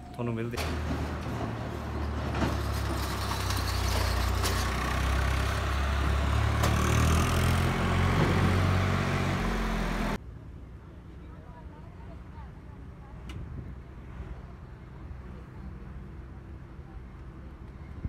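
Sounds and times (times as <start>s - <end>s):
vehicle engine rumbling: 0.0s - 11.6s
traffic noise: 0.0s - 18.0s.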